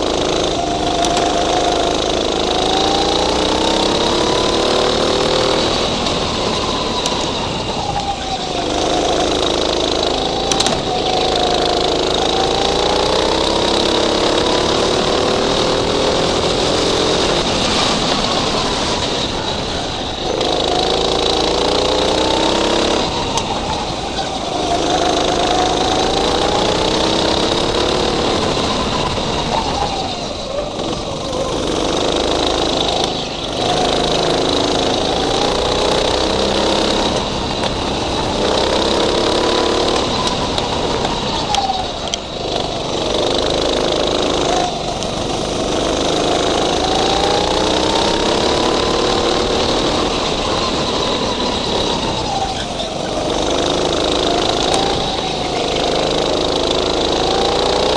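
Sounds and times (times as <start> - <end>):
go-kart engine revving: 0.0 - 57.9
road and wind noise: 0.0 - 57.9.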